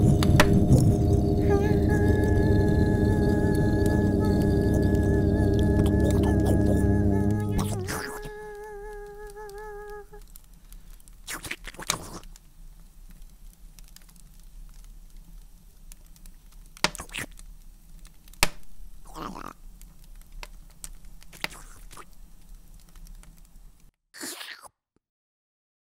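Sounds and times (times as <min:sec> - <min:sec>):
held musical note: 0:00.0 - 0:10.1
low electrical hum: 0:00.0 - 0:11.2.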